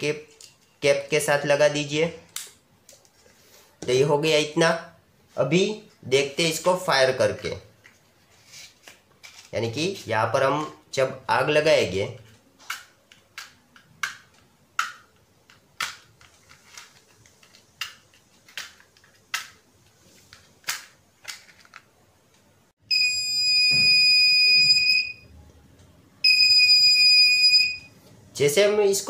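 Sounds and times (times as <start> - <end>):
electronic buzzer high tone: 22.9 - 25.2, 26.2 - 27.9.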